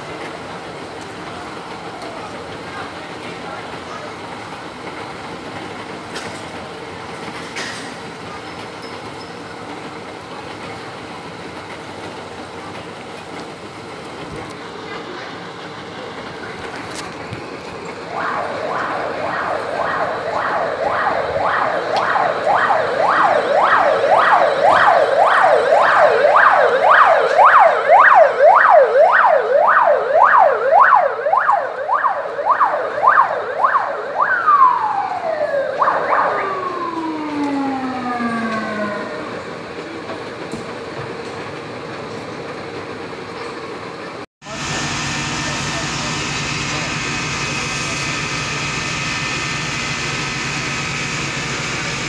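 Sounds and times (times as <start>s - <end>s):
emergency siren yelping: 17.9s - 40.0s, 44.4s - 52.0s.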